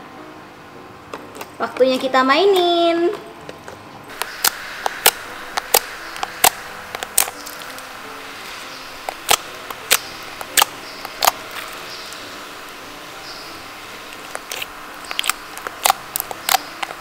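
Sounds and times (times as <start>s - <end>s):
slime clicking and popping: 4.2s - 7.6s, 9.1s - 11.7s, 14.1s - 17.0s.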